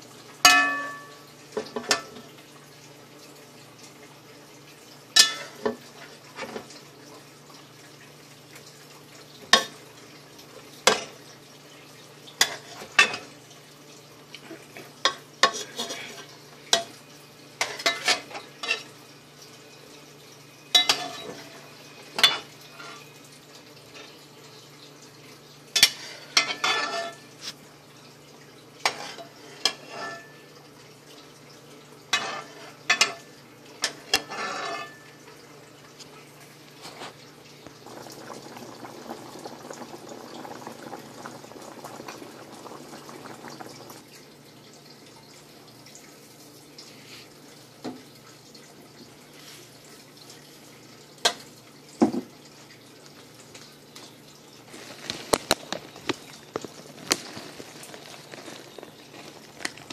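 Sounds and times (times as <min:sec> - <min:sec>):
pot of liquid boiling: 0:00.0 - 0:59.9
spoon scraping in pan: 0:17.6 - 0:19.0, 0:25.8 - 0:27.6, 0:28.8 - 0:30.4, 0:32.1 - 0:33.2, 0:33.8 - 0:35.1, 0:54.7 - 0:59.9.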